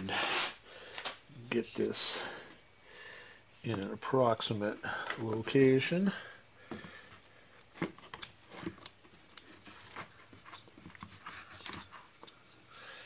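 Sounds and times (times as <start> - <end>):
plastic parts clicking and scraping: 7.6 - 12.7.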